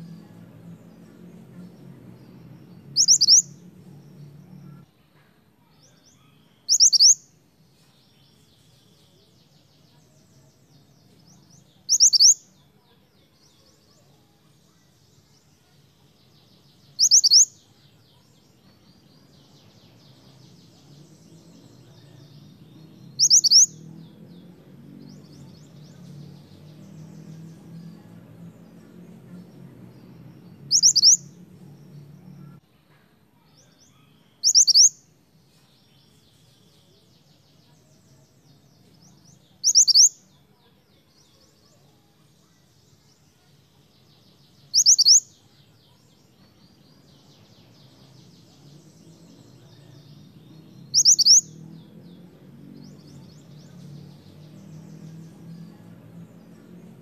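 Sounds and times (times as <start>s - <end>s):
faint high twittering: 0.0s - 57.0s
bird whistled calls: 3.0s - 3.5s, 6.6s - 7.2s, 11.9s - 12.4s, 17.0s - 17.5s, 23.2s - 23.8s, 30.7s - 31.2s, 34.4s - 35.0s, 39.6s - 40.1s, 44.7s - 45.2s, 50.9s - 51.5s.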